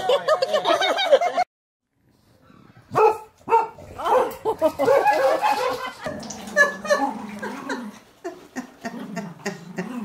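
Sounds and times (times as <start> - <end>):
dog barking and yipping: 2.9 - 7.0.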